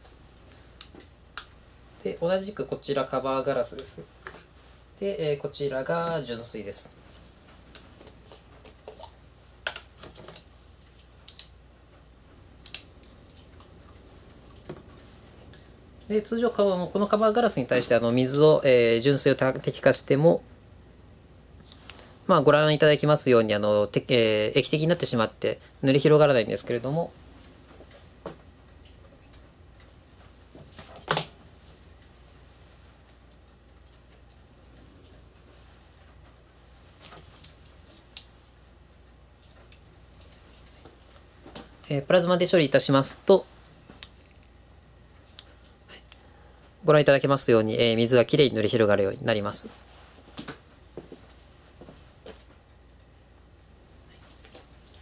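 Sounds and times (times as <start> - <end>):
faint room hum: 0.0 - 55.0.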